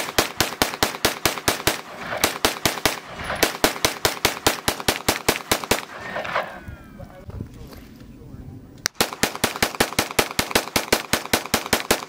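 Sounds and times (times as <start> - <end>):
rapid gunshots: 0.0 - 6.4, 9.0 - 12.0.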